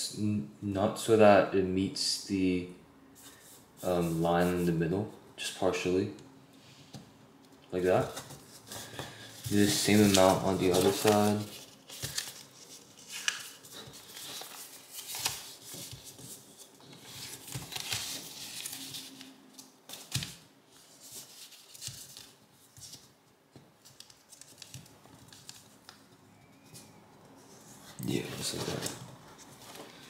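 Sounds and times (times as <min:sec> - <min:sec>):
paper rustling and crinkling: 0:07.9 - 0:23.2, 0:23.8 - 0:26.0, 0:27.4 - 0:30.0.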